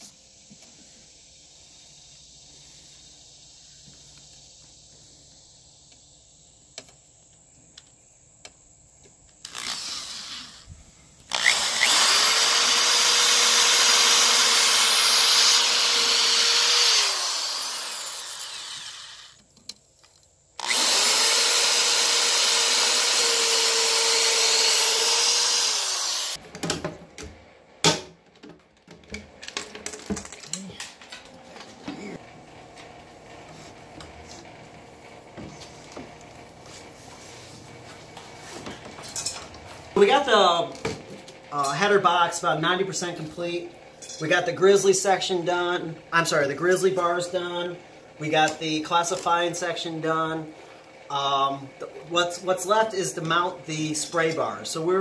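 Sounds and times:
cordless drill boring through metal: 0:09.5 - 0:10.7, 0:11.3 - 0:19.4, 0:20.6 - 0:26.4.

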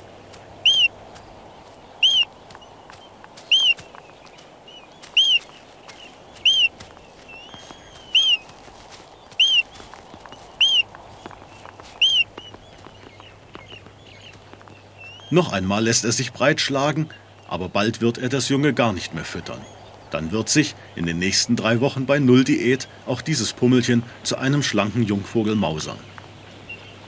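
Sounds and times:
albatross chick shrill whistles: 0:00.6 - 0:00.9, 0:02.0 - 0:02.3, 0:03.5 - 0:03.8, 0:05.1 - 0:05.5, 0:06.4 - 0:06.7, 0:07.4 - 0:08.4, 0:09.4 - 0:09.7, 0:10.6 - 0:10.9, 0:12.0 - 0:12.6.

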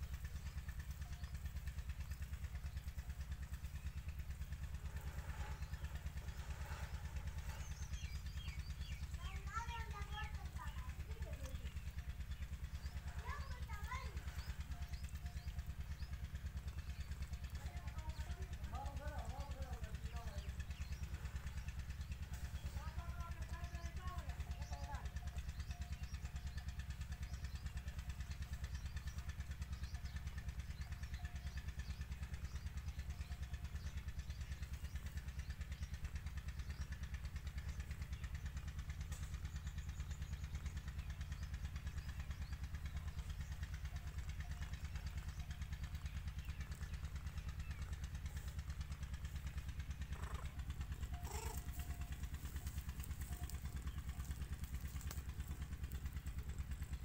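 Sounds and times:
cat purring: 0:50.2 - 0:50.6, 0:51.2 - 0:51.9.

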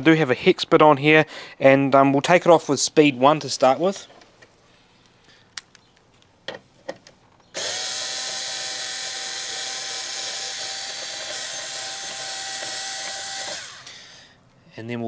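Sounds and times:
cordless screwdriver motor whine: 0:07.5 - 0:14.2.

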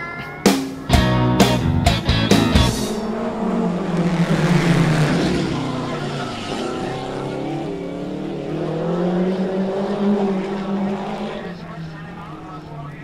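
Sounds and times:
two-stroke scooter engine revving: 0:02.8 - 0:11.2.

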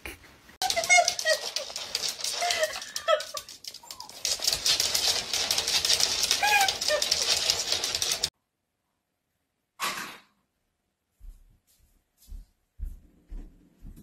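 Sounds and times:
dog claws clicking on floor: 0:00.6 - 0:08.3.

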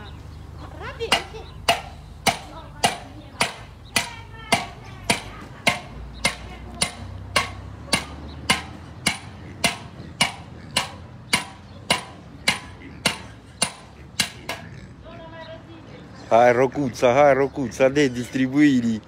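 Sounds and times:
hammer striking copper: 0:01.1 - 0:14.6.

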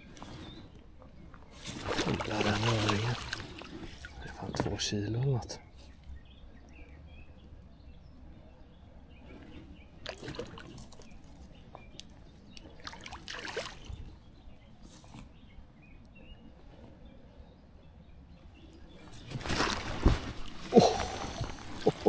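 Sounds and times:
water splashing and sloshing: 0:00.1 - 0:05.3, 0:10.0 - 0:14.2, 0:19.1 - 0:22.0.

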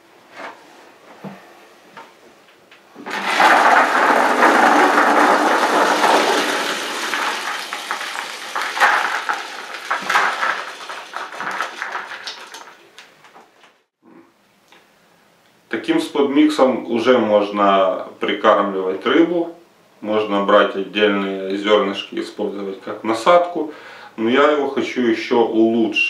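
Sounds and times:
grain pouring into plastic bucket: 0:03.0 - 0:13.1.

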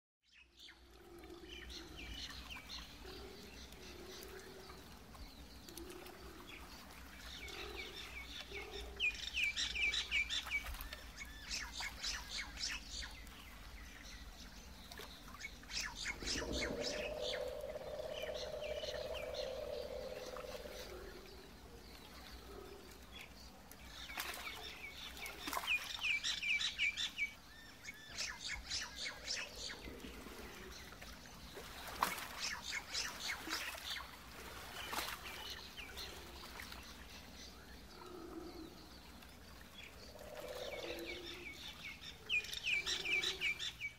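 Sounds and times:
steady low background: 0:15.4 - 0:23.7
lower drawn-out animal call: 0:16.0 - 0:21.6.

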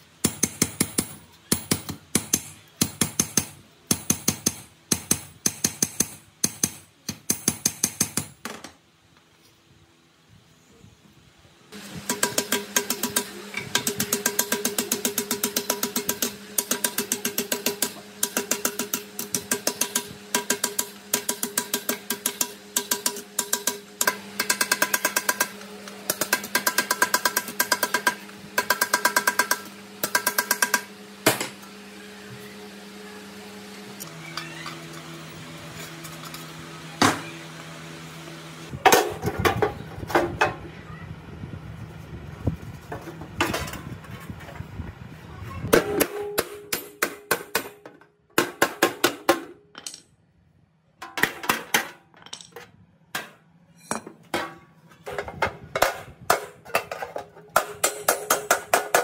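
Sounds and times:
hammer tapping sheet metal: 0:45.7 - 0:50.0, 0:57.6 - 0:59.0.

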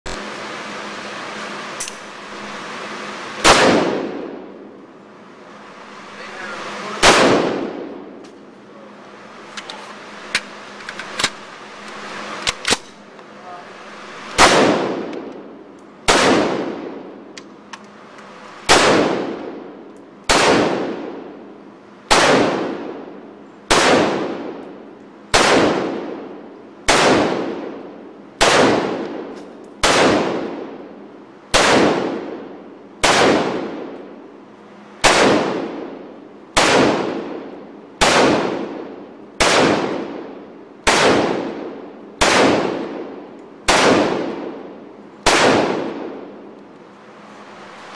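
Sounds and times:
rifle shots echoing indoors: 0:03.4 - 0:04.6, 0:06.9 - 0:08.2, 0:14.4 - 0:15.4, 0:16.0 - 0:17.2, 0:18.6 - 0:21.4, 0:22.1 - 0:24.7, 0:25.3 - 0:30.8, 0:31.5 - 0:34.0, 0:35.0 - 0:46.4.

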